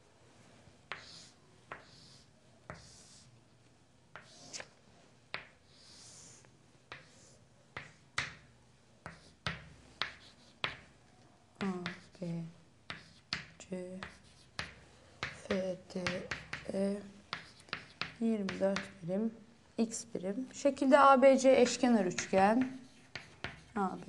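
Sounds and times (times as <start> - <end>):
chalk tapping on board: 0.9 - 3.2, 5.3 - 6.0, 7.8 - 10.9, 11.6 - 12.1, 12.9 - 19.0, 21.6 - 23.8
chalk scratching: 0.9 - 3.3, 4.2 - 4.7, 5.4 - 8.0, 9.1 - 10.8, 14.0 - 16.7, 22.2 - 24.0.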